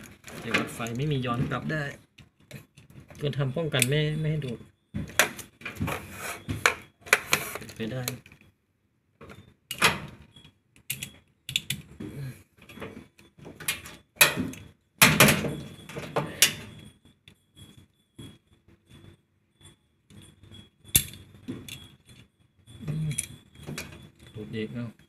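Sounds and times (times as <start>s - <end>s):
clicks and rattles of metal parts: 0.0s - 5.8s, 9.2s - 12.0s, 12.6s - 17.4s, 20.1s - 24.4s.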